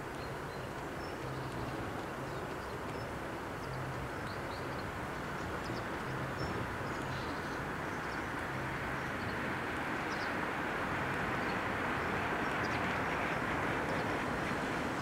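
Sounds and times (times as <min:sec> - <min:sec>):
train rumbling: 0:08.6 - 0:15.0.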